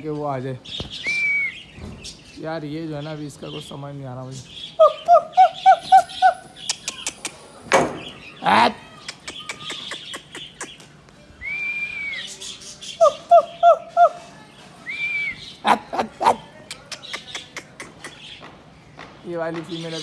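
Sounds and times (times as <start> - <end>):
loud knocks: 7.7 - 8.1.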